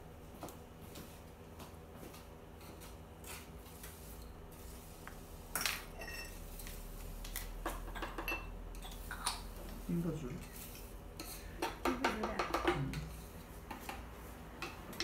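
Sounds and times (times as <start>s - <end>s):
metallic clink with ring: 5.9s - 6.4s
tool tapping on wooden board: 11.6s - 13.0s.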